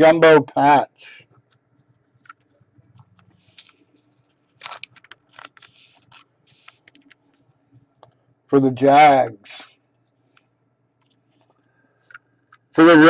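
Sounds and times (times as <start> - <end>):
plastic sleeve rustling: 2.2 - 7.4
small clicks: 4.6 - 7.4.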